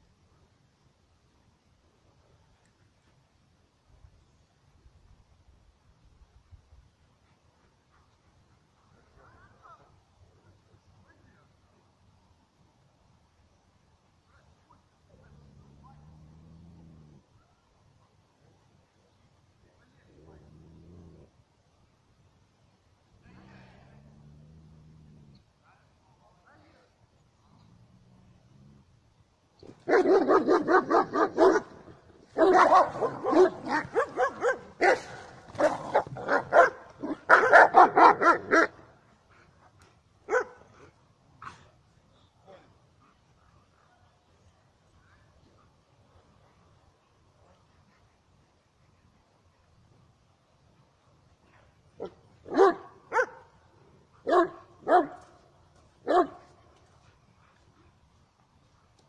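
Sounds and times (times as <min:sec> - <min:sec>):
dog barking: 0:29.8 - 0:31.8, 0:32.4 - 0:38.8, 0:40.3 - 0:40.6, 0:52.0 - 0:53.5, 0:54.2 - 0:55.2, 0:56.0 - 0:56.4.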